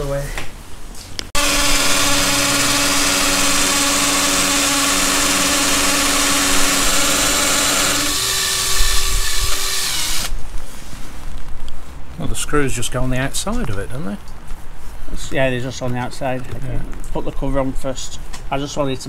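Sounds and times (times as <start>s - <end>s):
drill boring into brick: 1.4s - 10.4s.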